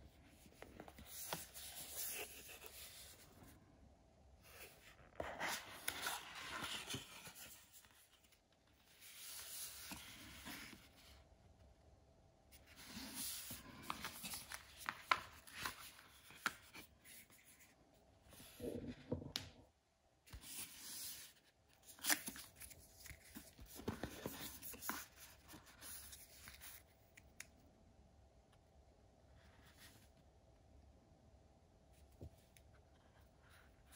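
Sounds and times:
cardboard and paper rustling: 0.3s - 3.4s, 4.5s - 11.2s, 12.6s - 17.7s, 20.3s - 26.9s.

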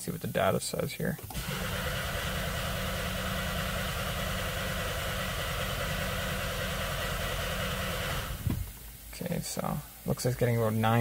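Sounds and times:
car engine cranking on starter: 1.2s - 8.8s.

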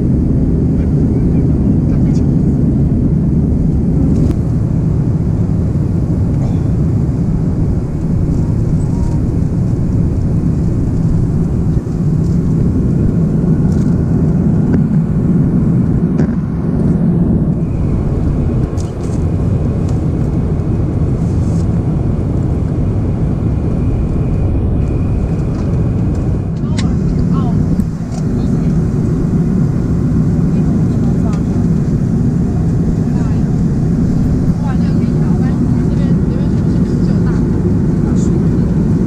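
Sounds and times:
airplane cabin engine and airflow noise: 0.0s - 39.0s.

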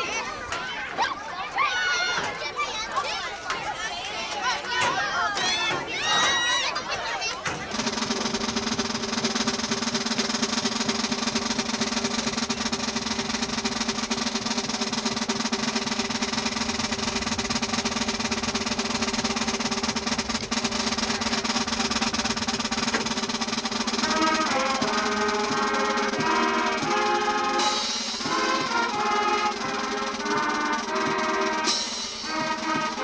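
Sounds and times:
school band playing: 7.5s - 33.0s
wind instrument melody: 20.5s - 33.0s.

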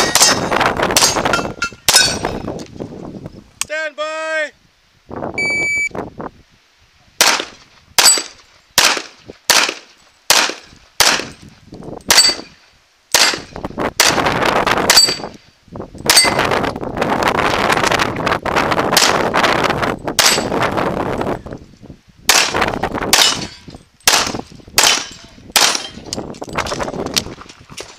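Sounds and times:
shot timer beep: 5.4s - 5.9s
pistol shots: 7.2s - 11.4s, 12.1s - 12.5s, 13.1s - 14.2s, 22.3s - 23.5s, 24.1s - 26.0s.

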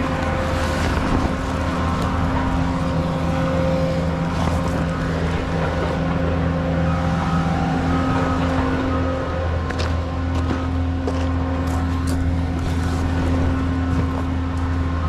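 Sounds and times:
engine droning steadily: 0.0s - 15.0s.

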